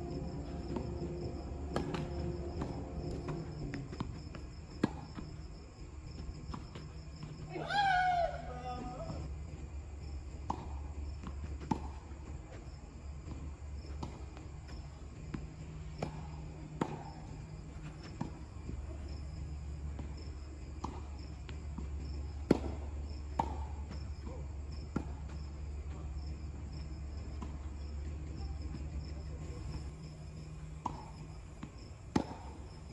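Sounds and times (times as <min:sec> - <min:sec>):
rackets striking tennis ball: 0:00.0 - 0:05.4, 0:10.3 - 0:12.6, 0:13.2 - 0:18.6, 0:19.6 - 0:25.5, 0:30.8 - 0:32.9
steady low hum: 0:00.0 - 0:07.6, 0:08.2 - 0:32.9
insects chirping: 0:00.0 - 0:32.9
ball bouncing on court: 0:00.2 - 0:05.4, 0:10.4 - 0:12.6, 0:13.2 - 0:17.3, 0:20.8 - 0:26.0, 0:30.8 - 0:32.6.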